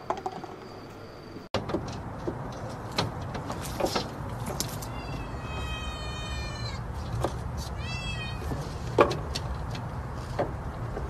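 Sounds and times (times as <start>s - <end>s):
cat meowing: 4.8s - 6.8s, 7.8s - 8.6s.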